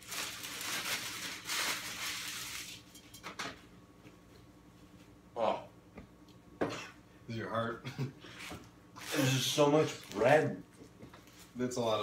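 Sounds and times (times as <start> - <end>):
paper wrappers rustling: 0.0 - 3.0, 9.0 - 10.4.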